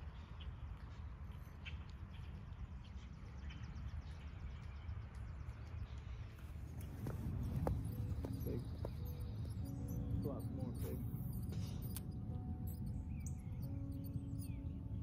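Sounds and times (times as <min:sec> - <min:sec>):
birds chirping: 0:00.0 - 0:15.0
fast high bird trill: 0:06.9 - 0:15.0.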